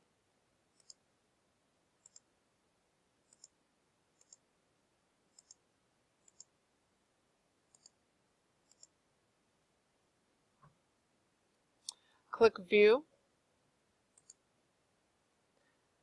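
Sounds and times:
computer mouse clicks: 0:00.7 - 0:01.0, 0:02.0 - 0:02.3, 0:03.2 - 0:03.6, 0:04.2 - 0:04.5, 0:05.3 - 0:05.6, 0:06.2 - 0:06.6, 0:07.7 - 0:08.0, 0:08.6 - 0:09.0, 0:14.1 - 0:14.4.

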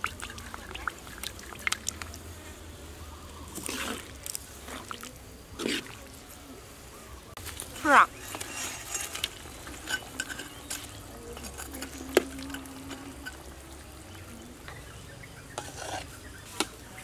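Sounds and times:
ladle scraping and clinking on wok: 0:08.1 - 0:14.3, 0:15.5 - 0:16.8
liquid sloshing in a wok: 0:15.4 - 0:16.8.

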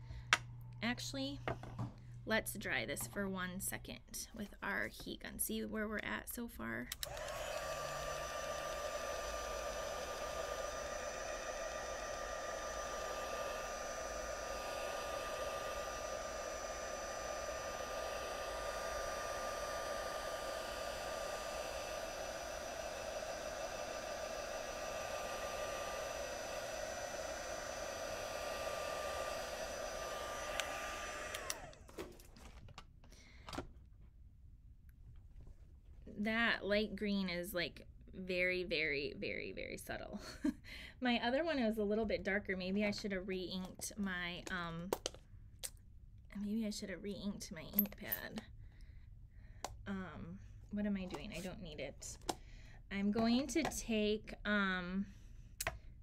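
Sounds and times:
heat gun blowing: 0:07.0 - 0:31.9.

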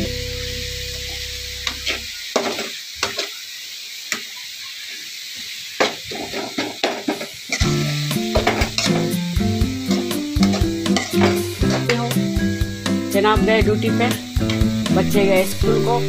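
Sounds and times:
vegetables sizzling in a metal pan: 0:00.0 - 0:16.0
spatula scraping a pan: 0:01.7 - 0:03.4, 0:05.8 - 0:09.2, 0:09.8 - 0:12.2.

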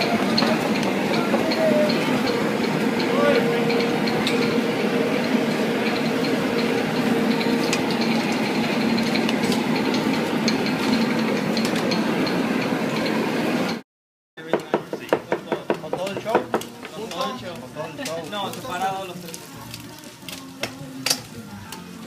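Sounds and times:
low mechanical hum: 0:00.0 - 0:13.8.

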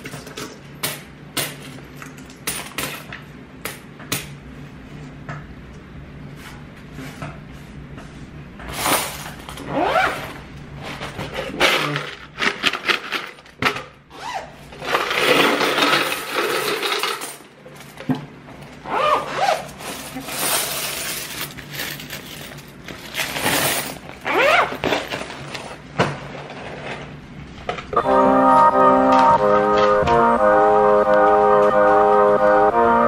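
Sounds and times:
coins pouring into plastic tub: 0:14.8 - 0:17.5, 0:19.7 - 0:24.0
tub of coins shaken rattling: 0:14.8 - 0:17.5, 0:19.6 - 0:24.2.

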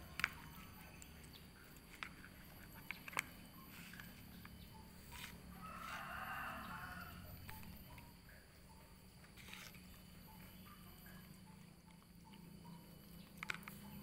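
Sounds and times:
rustling: 0:00.0 - 0:07.7, 0:09.2 - 0:10.1.

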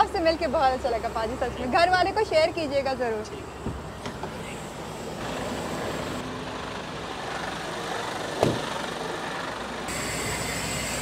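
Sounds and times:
truck and traffic noise: 0:00.0 - 0:11.0.

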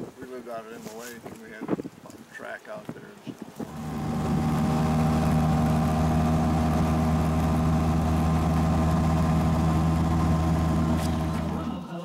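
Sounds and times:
atv engine running steadily: 0:03.6 - 0:11.7.

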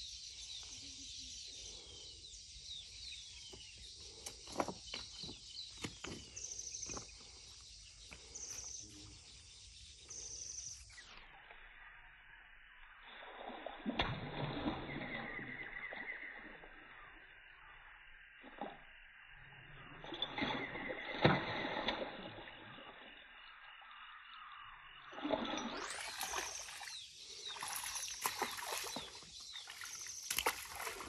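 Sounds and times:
birds chirping: 0:00.0 - 0:11.2, 0:24.1 - 0:31.0
fish thrashing and splashing: 0:25.2 - 0:31.0.

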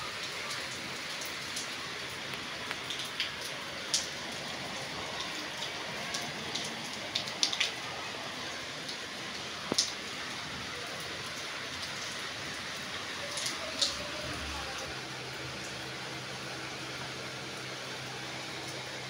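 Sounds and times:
raindrops ticking close by: 0:00.0 - 0:19.0
steady rain hiss: 0:00.0 - 0:19.0.

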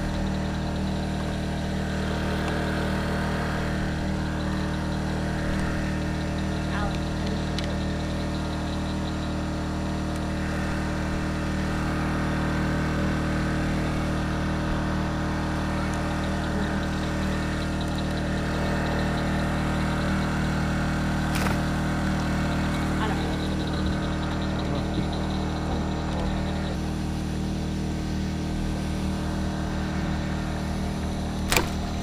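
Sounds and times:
small engine humming: 0:00.0 - 0:32.0
sharp click: 0:21.3 - 0:21.6, 0:31.4 - 0:32.0.

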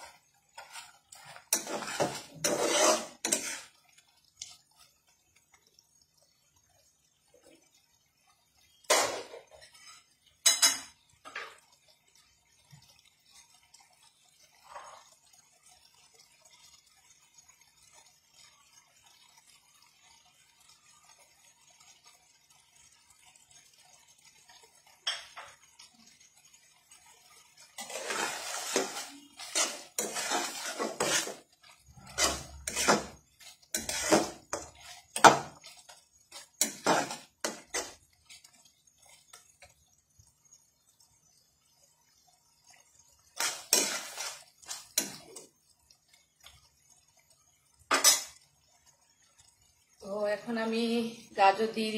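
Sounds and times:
spatula scraping metal pan: 0:00.0 - 0:03.8, 0:27.6 - 0:38.6, 0:43.4 - 0:45.4, 0:47.9 - 0:48.4.

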